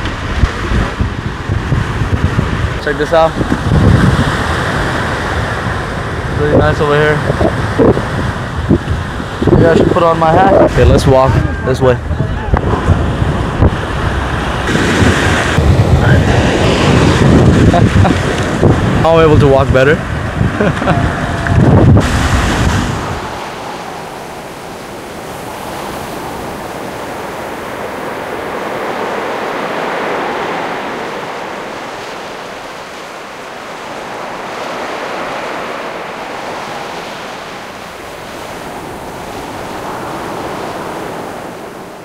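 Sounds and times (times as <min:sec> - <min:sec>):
sea surf washing on beach: 0:00.0 - 0:42.0.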